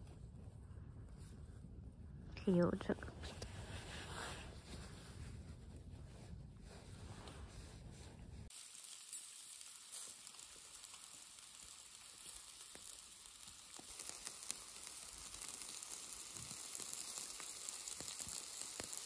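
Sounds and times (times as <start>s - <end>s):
ribs sizzling on charcoal grill: 8.5s - 19.0s.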